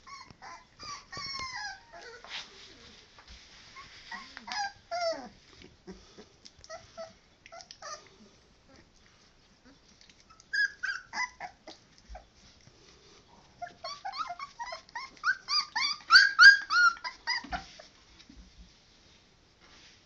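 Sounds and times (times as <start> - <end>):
puppies yelping and whimpering: 0.0 - 2.3, 3.8 - 6.0, 6.7 - 8.1, 10.3 - 12.3, 13.5 - 18.0.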